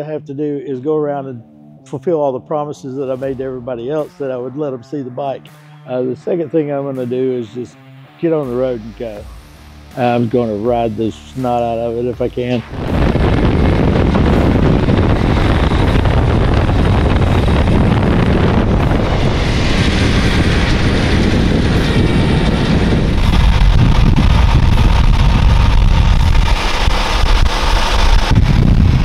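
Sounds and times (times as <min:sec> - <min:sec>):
wind noise on microphone: 0:08.8 - 0:29.0
motorcycle engine running: 0:12.6 - 0:29.0.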